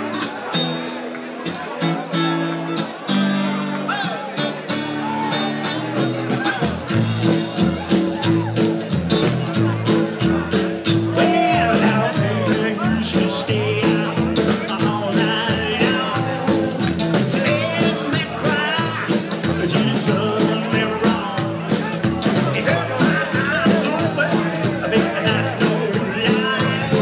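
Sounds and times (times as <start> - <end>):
rock and roll band playing: 0.0 - 27.0
man singing: 9.4 - 27.0.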